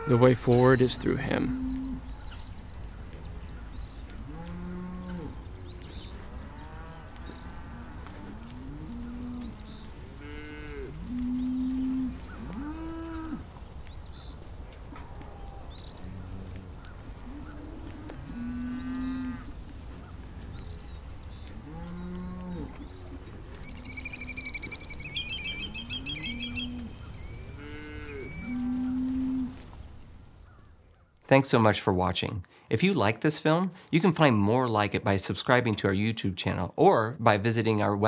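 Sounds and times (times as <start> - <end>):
bird chirping: 0.3 - 7.7, 18.6 - 29.1
cows mooing: 4.2 - 13.5, 15.0 - 19.6, 21.5 - 23.3, 25.3 - 29.6.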